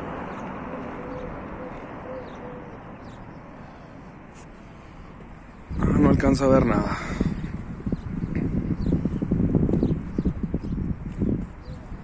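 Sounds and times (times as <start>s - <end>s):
outdoor street noise: 0.0s - 12.0s
bird cooing: 0.9s - 3.2s.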